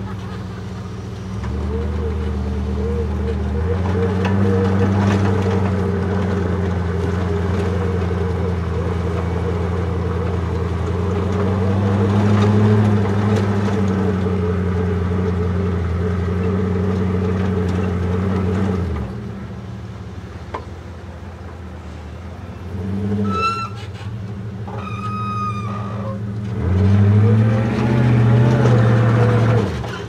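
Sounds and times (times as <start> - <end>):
truck engine droning under load: 0.0 - 30.0.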